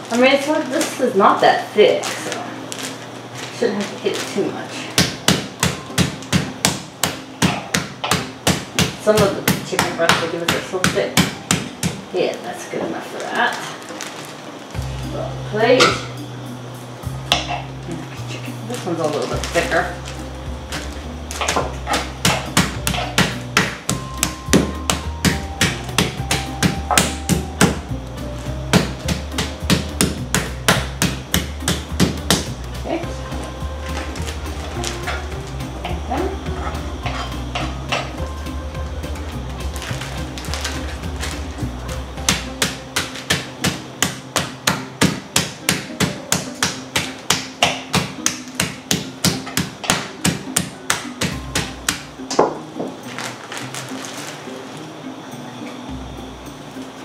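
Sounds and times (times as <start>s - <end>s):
meat hammer pounding chicken: 5.0s - 12.1s, 20.7s - 27.8s, 28.7s - 32.6s, 42.2s - 52.6s.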